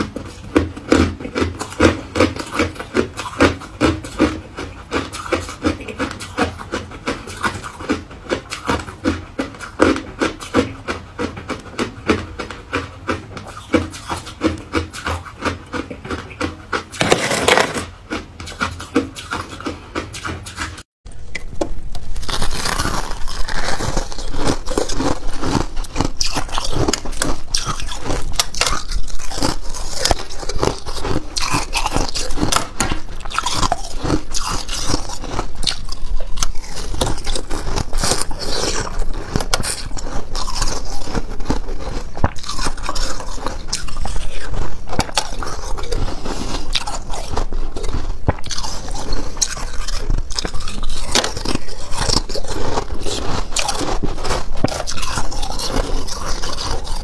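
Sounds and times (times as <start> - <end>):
crunching ice with teeth: 0.0 - 20.8, 21.8 - 57.0
ice scraping: 17.0 - 17.9.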